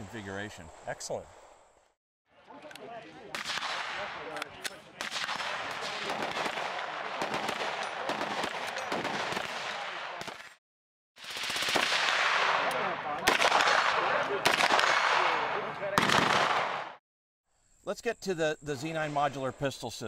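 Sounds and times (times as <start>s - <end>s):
continuous gunfire: 3.3s - 10.6s, 11.2s - 17.0s
loud close gunshots: 3.3s - 10.6s, 11.2s - 17.0s.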